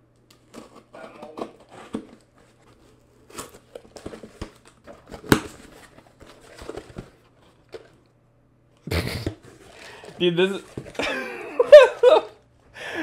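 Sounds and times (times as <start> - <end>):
cardboard crinkling and tearing: 0.4 - 8.0.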